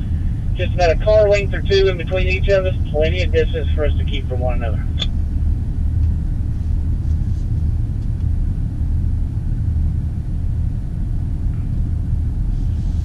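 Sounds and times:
car rumble from inside cabin: 0.0s - 13.0s.

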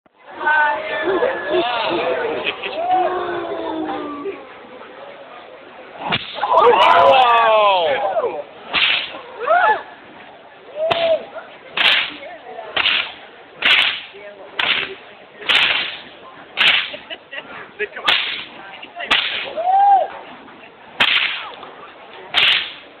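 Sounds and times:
whip cracking: 6.0s - 6.5s, 8.7s - 9.2s, 10.9s - 11.2s, 11.8s - 12.2s, 12.8s - 17.0s, 18.1s - 18.5s, 19.1s - 19.6s, 21.0s - 21.6s, 22.3s - 22.9s.

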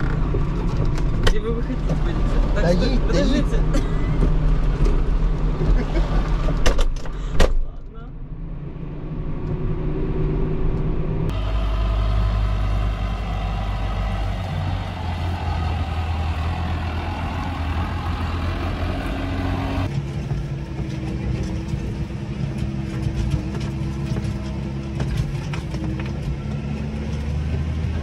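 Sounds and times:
tractor diesel engine running: 11.3s - 28.0s.

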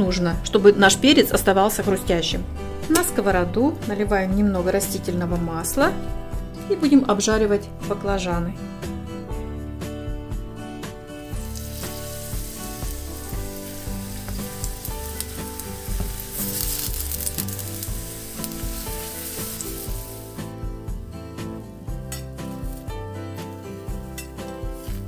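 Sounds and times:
eggplant sizzling in hot oil: 11.2s - 20.7s, 22.4s - 23.0s, 23.6s - 25.0s.

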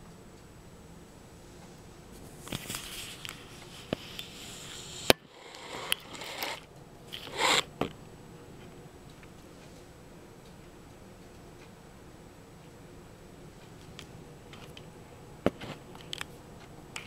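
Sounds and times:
rustling: 1.4s - 8.0s.

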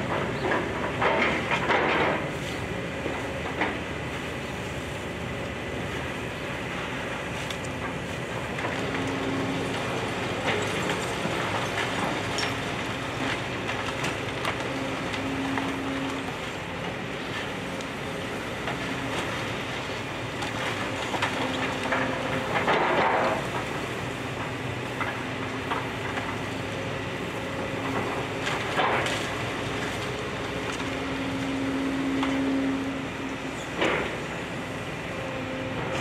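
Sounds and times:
excavator diesel engine: 0.0s - 36.0s
debris crunching and cracking: 7.6s - 16.7s.

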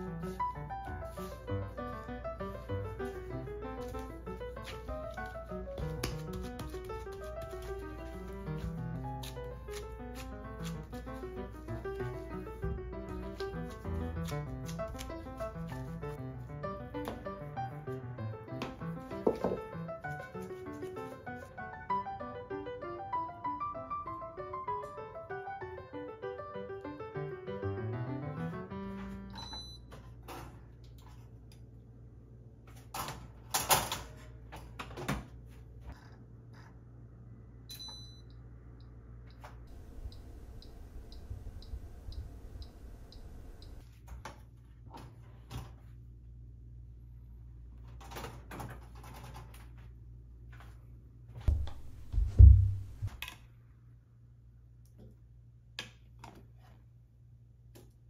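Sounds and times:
low steady hum: 35.3s - 47.9s
dull thumps: 51.4s - 53.2s.

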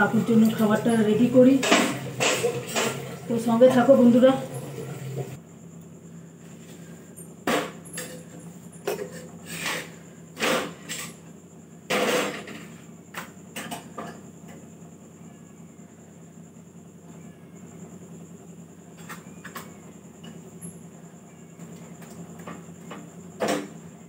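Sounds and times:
steady low hum: 0.0s - 24.0s
utensils clattering on griddle: 1.5s - 3.3s, 7.5s - 11.2s, 11.9s - 12.8s.

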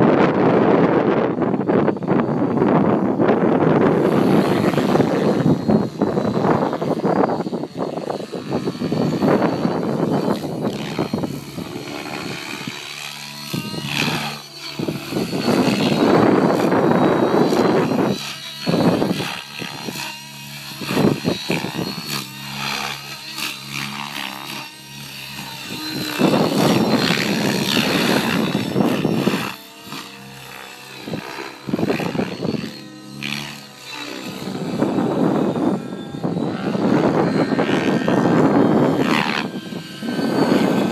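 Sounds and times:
rc helicopter motor whine: 0.0s - 40.9s
rotor whooshing: 0.1s - 40.9s.

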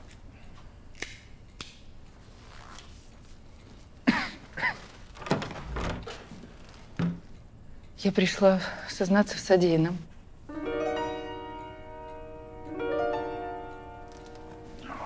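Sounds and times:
door creaking: 4.7s - 7.2s
door thuds: 5.2s - 6.3s.

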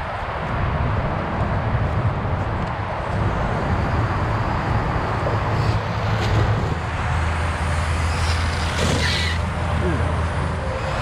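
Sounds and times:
electric rc cars running: 3.1s - 11.0s.

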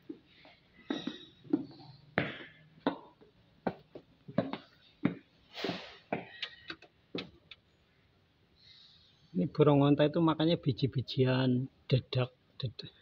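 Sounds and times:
footsteps on tiled floor: 0.0s - 6.4s.

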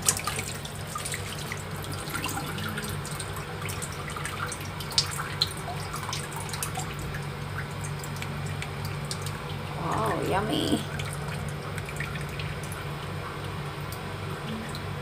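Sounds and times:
water dripping and trickling: 0.0s - 15.0s.

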